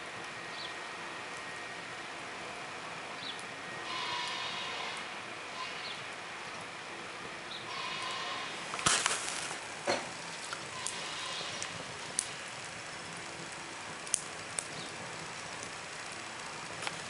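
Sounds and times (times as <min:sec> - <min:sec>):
wood fire crackling and popping: 0:08.6 - 0:17.0.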